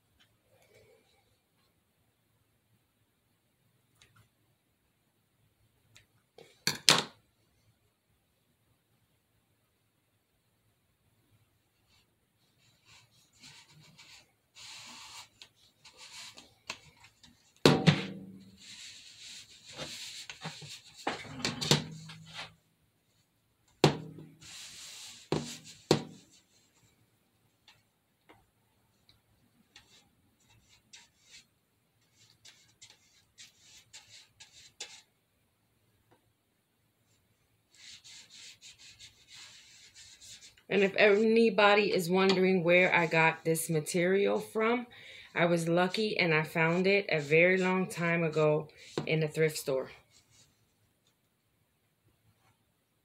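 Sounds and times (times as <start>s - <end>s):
rubbing and scraping of objects: 12.6s - 22.6s, 24.1s - 27.0s, 29.7s - 35.1s, 45.4s - 50.7s
paintbrush scrubbing glue: 12.7s - 16.8s, 29.8s - 35.1s, 37.7s - 40.7s.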